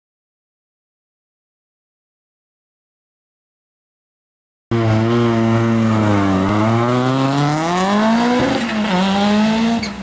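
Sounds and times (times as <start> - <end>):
race car engine accelerating: 4.7 - 10.0.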